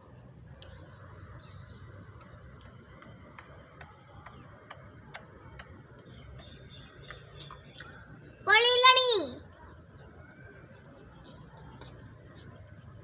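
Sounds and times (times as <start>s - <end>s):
sharp ticks: 2.2s - 8.0s.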